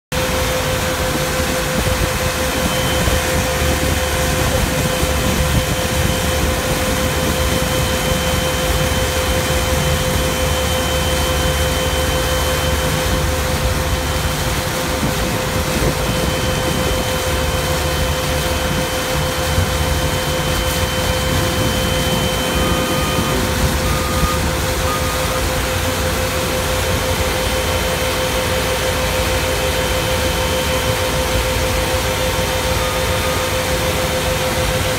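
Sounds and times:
constant hum tone: 0.1s - 34.9s
heavy machinery running: 0.1s - 34.9s
short faint beeps: 20.2s - 25.5s.

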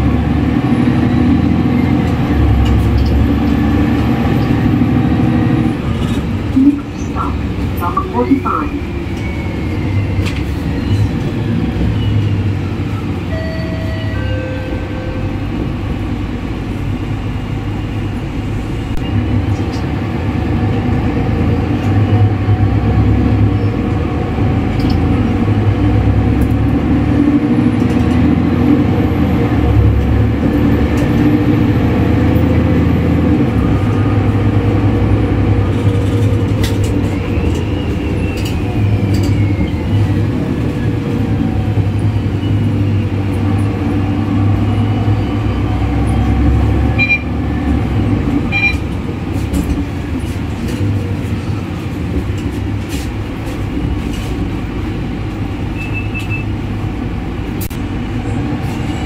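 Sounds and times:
bus engine rumble: 0.0s - 59.0s
short high beeps: 47.0s - 47.3s.

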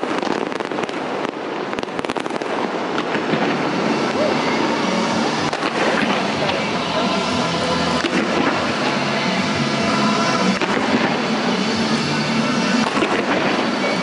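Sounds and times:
fireworks crackling and popping: 0.0s - 14.0s.

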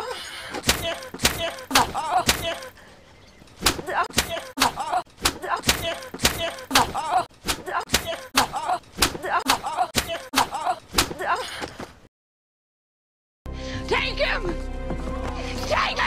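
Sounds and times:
boy crying out in pain: 3.9s - 11.5s.

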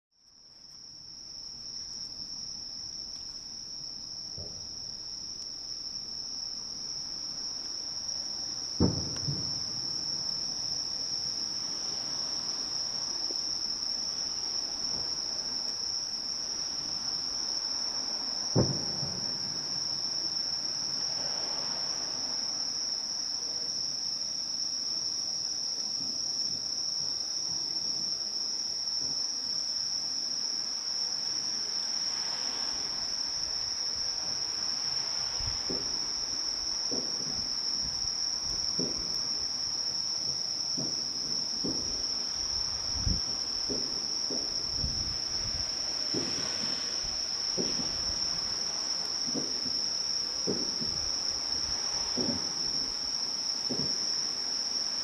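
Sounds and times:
night insects trilling: 0.3s - 55.0s
faint thump: 4.4s - 4.7s, 8.8s - 9.8s, 18.5s - 19.6s, 35.4s - 36.0s, 36.9s - 37.5s, 38.5s - 39.2s, 40.8s - 42.1s, 43.0s - 48.4s, 49.3s - 49.8s, 50.4s - 51.1s, 51.9s - 52.8s, 53.7s - 54.1s
distant firework booms: 8.8s - 10.1s, 18.5s - 19.7s, 40.8s - 49.8s.

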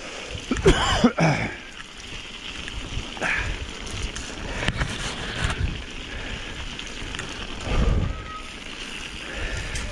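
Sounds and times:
rough rumbling noise: 1.9s - 9.9s
wind buffeting microphone: 2.1s - 9.9s.

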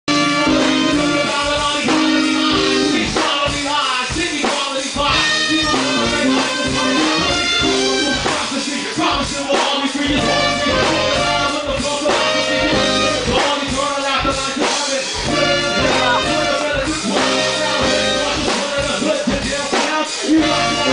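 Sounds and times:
saxophone: 0.0s - 3.3s, 5.1s - 9.2s, 10.0s - 13.8s, 15.2s - 19.3s, 20.2s - 20.9s
bass: 0.0s - 4.4s, 5.0s - 20.9s
drums: 0.0s - 20.9s
person rapping into a microphone: 0.4s - 20.9s.

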